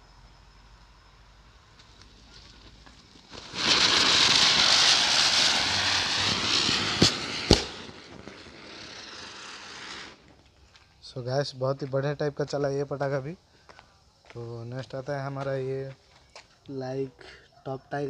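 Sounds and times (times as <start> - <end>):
ground-spinner fireworks hissing: 0.0 - 18.0
sharp bangs: 3.5 - 8.5.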